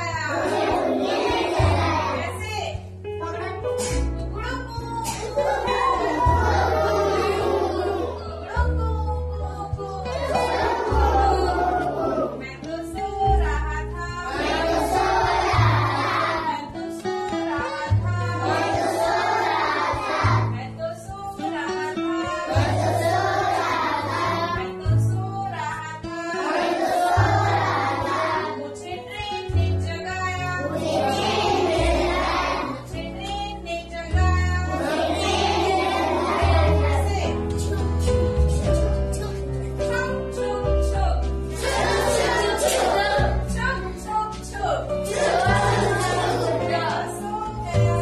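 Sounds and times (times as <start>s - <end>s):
instrumental backing with bass: 0.0s - 48.0s
children singing: 0.3s - 2.2s, 5.1s - 8.6s, 10.0s - 12.5s, 14.2s - 20.6s, 22.2s - 24.8s, 26.4s - 28.6s, 30.6s - 32.9s, 34.7s - 37.1s, 41.5s - 43.5s, 45.0s - 48.0s.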